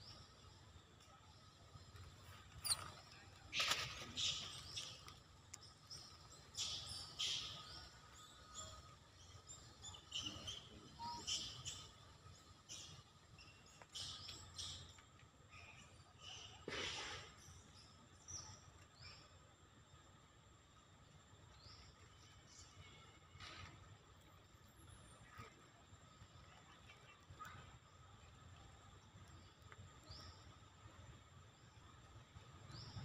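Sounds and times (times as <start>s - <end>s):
high-pitched chirps and squeaks: 2.5s - 3.0s.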